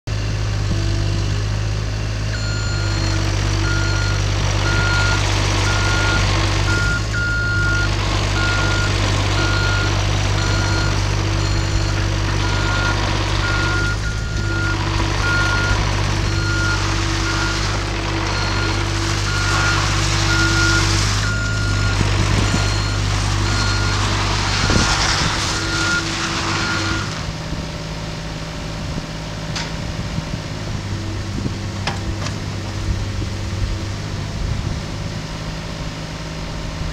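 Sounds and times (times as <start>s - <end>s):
diesel engine running: 0.0s - 36.9s
travel alarm beeping: 2.4s - 17.6s, 18.4s - 24.0s, 25.5s - 27.1s.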